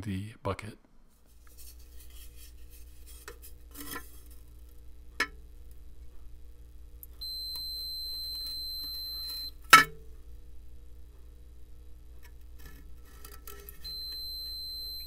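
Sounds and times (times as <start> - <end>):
multimeter continuity beep: 7.1 - 9.6, 13.8 - 15.0.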